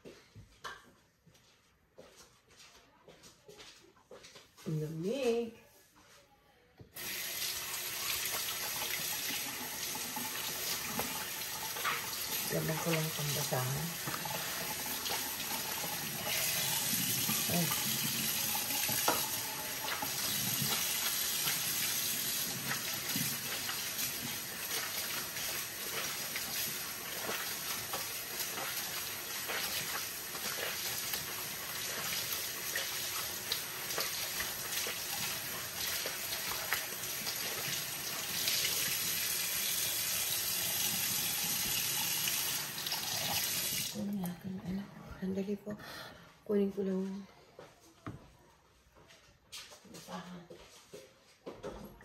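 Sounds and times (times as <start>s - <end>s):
rag washed by hand: 7.0s - 44.0s
tap water running into sink: 7.0s - 44.0s.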